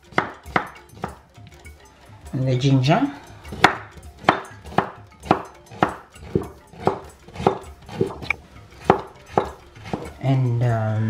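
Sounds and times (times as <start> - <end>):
knife chopping on cutting board: 0.1 - 1.2, 3.5 - 10.2.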